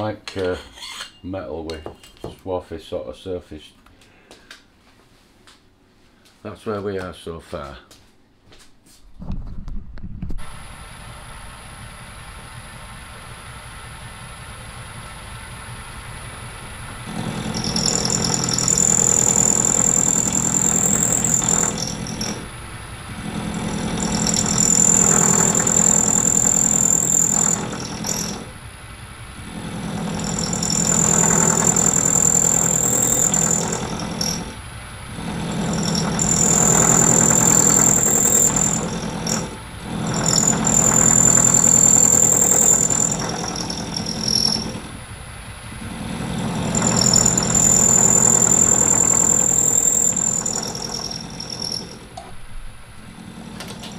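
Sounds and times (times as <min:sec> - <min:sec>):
lathe spindle running: 0:11.2 - 0:53.9
high whine of metal cutting: 0:15.8 - 0:52.2.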